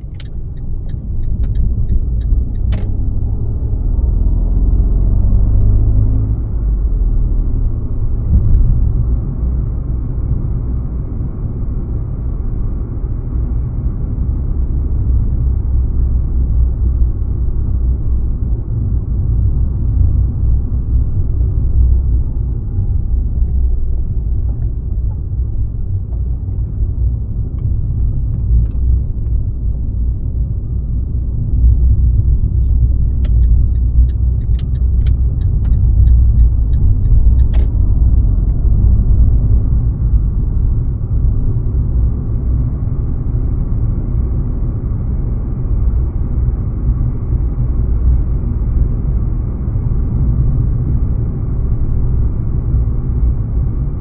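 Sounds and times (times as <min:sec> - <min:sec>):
sharp clicks: 0:00.0 - 0:03.0, 0:32.6 - 0:37.8
car road and engine rumble: 0:00.0 - 0:54.0.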